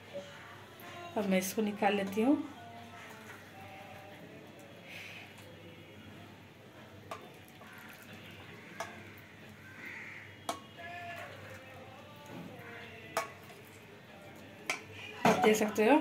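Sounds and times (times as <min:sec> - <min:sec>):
tea pouring into cup: 0:07.2 - 0:08.6.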